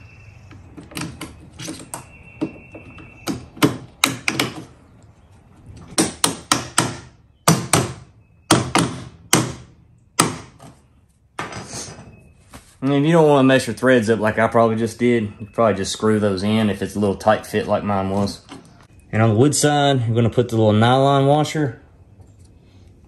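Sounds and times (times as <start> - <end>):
hammer tapping bolts: 0.5 - 4.8, 5.8 - 10.8
bolts and bracket clicking: 0.5 - 7.9.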